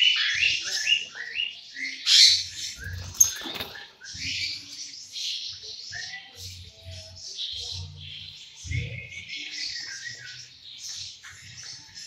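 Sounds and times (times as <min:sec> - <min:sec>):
lovebirds chattering and screeching: 0:00.0 - 0:12.0.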